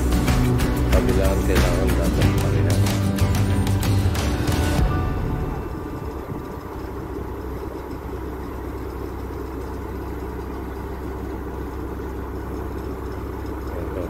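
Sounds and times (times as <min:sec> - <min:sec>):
crane engine idling: 0:00.0 - 0:14.0.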